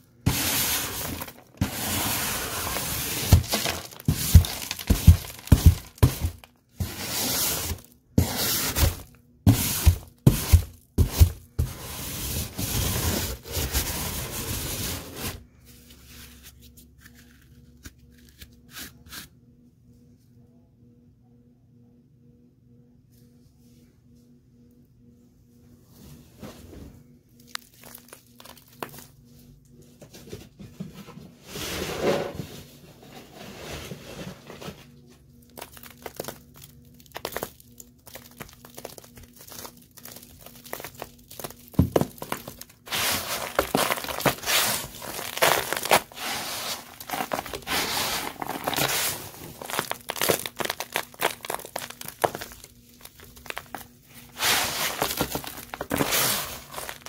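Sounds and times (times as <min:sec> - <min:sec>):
hand crunching through dry debris: 0:02.6 - 0:06.5, 0:27.5 - 0:29.1, 0:35.6 - 0:57.0.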